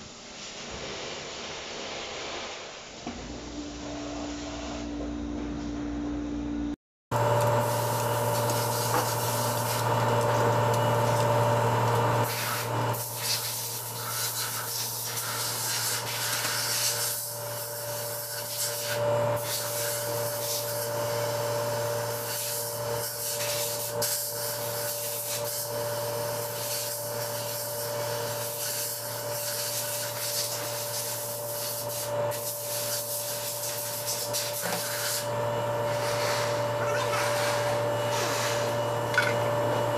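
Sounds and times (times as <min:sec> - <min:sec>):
steady machine hum: 0:00.0 - 0:15.2, 0:33.7 - 0:39.9.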